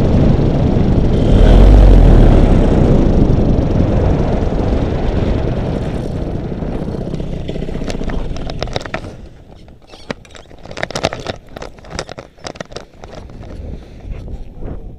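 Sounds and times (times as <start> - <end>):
paramotor motor rushing: 1.0 - 12.1.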